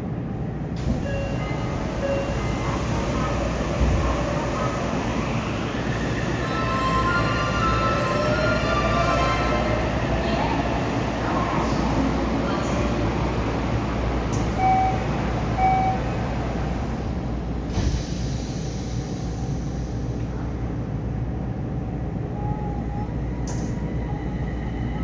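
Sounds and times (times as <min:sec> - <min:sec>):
door warning beeps: 0:14.6 - 0:16.1.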